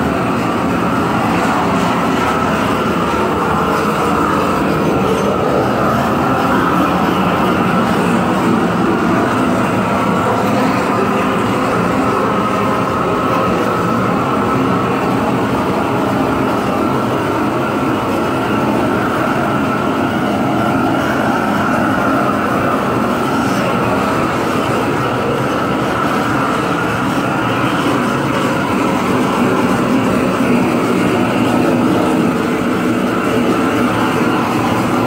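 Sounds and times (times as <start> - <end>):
propane torch flame roaring: 0.0 - 35.0.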